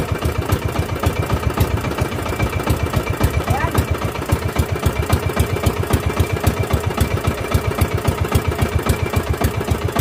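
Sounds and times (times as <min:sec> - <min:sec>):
boat engine running: 0:00.0 - 0:10.0.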